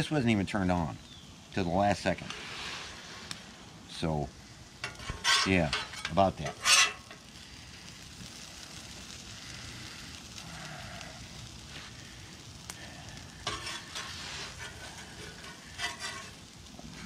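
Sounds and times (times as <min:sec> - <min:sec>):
food sizzling on griddle: 0:00.0 - 0:17.0
metal spatulas scraping griddle: 0:04.8 - 0:07.2, 0:13.4 - 0:17.0.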